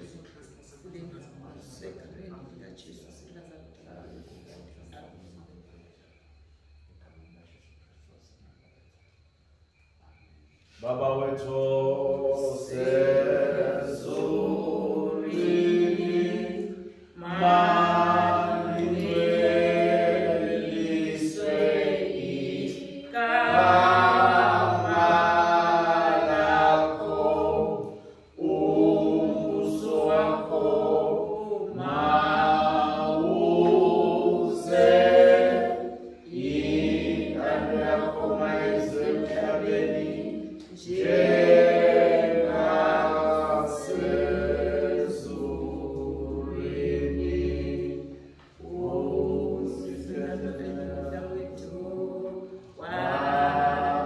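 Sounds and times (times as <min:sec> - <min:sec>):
congregation singing a hymn: 0:10.6 - 0:54.0.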